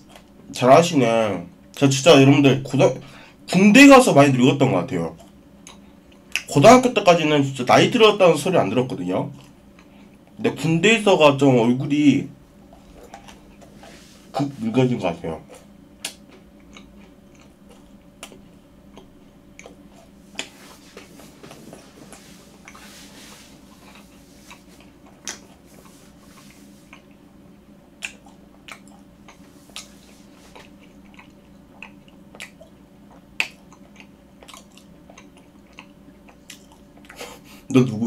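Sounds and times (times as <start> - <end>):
faint steady hum: 0.0 - 38.0
person chewing food: 5.2 - 6.5, 12.6 - 14.4, 15.4 - 37.6
moist mouth clicks and smacks: 15.4 - 20.6, 23.8 - 25.6, 28.0 - 37.2.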